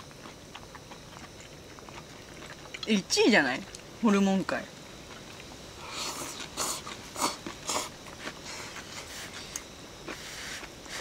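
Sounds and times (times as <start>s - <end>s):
soft eating sounds: 0.0s - 11.0s
people slurping noodles: 5.8s - 9.4s.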